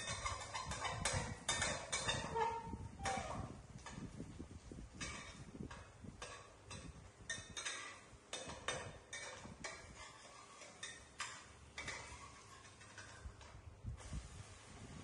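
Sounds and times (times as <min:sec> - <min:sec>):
metal spatula scraping wok: 0:00.0 - 0:04.0, 0:04.8 - 0:14.7
hot oil sizzling: 0:07.3 - 0:15.0.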